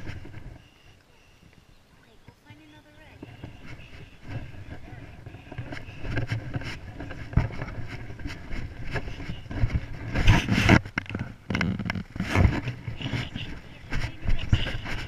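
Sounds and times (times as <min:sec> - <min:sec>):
wind noise on microphone: 0:00.0 - 0:00.6, 0:01.4 - 0:15.0
camera handling rubbing and knocking: 0:03.1 - 0:15.0.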